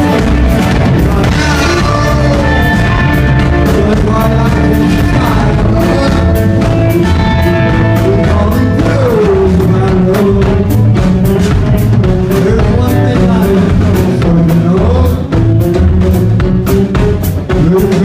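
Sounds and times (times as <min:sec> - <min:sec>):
man singing long sliding notes: 0:00.0 - 0:10.8
rock band playing: 0:00.0 - 0:18.0.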